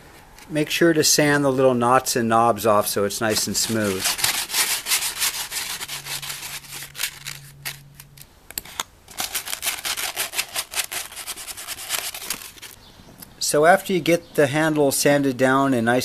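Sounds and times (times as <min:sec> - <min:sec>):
sandpaper rubbing on wood: 0:03.3 - 0:07.2, 0:09.2 - 0:12.5.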